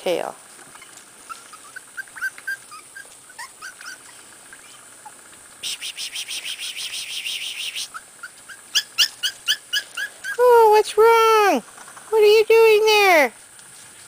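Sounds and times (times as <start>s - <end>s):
puppies squeaking and whimpering: 0.6s - 10.5s
high chattering trill: 5.6s - 8.0s.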